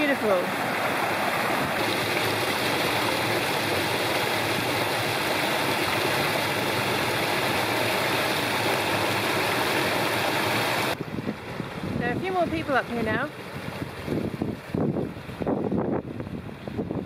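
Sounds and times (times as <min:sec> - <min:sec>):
waterfall rushing water: 0:00.0 - 0:11.0.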